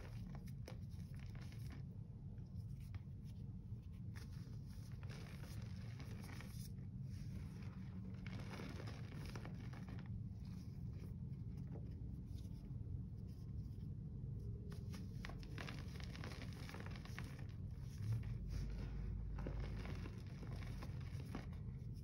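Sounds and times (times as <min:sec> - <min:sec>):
low steady hum: 0:00.0 - 0:22.0
powder crumbling and crunching: 0:04.1 - 0:10.6, 0:14.9 - 0:22.0.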